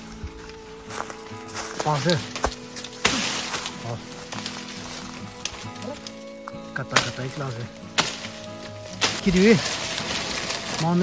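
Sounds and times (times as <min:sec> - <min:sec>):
background music: 0:00.0 - 0:11.0
chopping strikes on plant stem: 0:02.4 - 0:03.8, 0:06.8 - 0:10.5.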